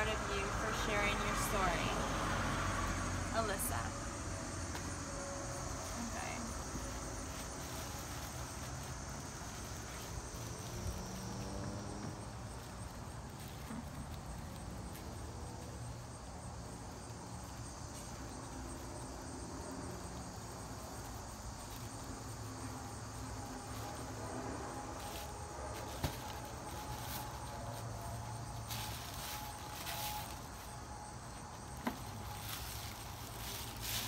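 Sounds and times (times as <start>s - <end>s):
paper bag and tissue rustling: 5.8s - 15.5s, 23.2s - 34.0s.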